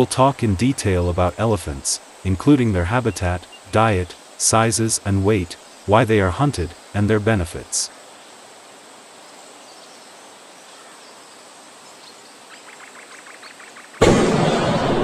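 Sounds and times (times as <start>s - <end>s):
faint steady hiss: 0.0s - 15.0s
loud burst of noise: 14.0s - 15.0s.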